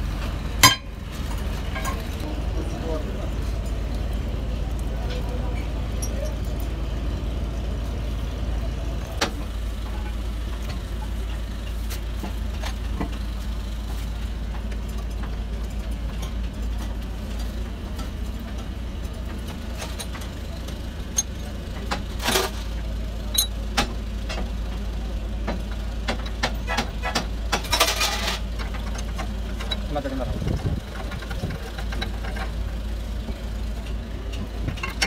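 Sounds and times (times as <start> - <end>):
low engine drone: 0.0 - 35.0
metal clinks and knocks: 0.6 - 2.2, 21.1 - 22.6, 23.3 - 23.6.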